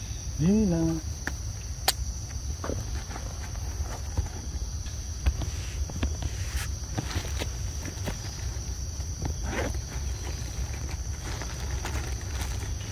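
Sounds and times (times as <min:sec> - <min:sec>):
crickets droning: 0:00.0 - 0:12.9
footsteps on leafy dirt path: 0:02.7 - 0:12.9.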